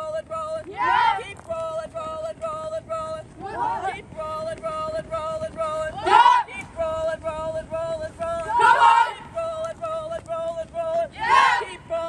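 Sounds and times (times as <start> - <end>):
loud shouts: 0.5 - 1.4, 2.9 - 4.3, 5.6 - 6.9, 8.2 - 9.5, 10.8 - 12.0
group chanting in unison: 11.1 - 12.0.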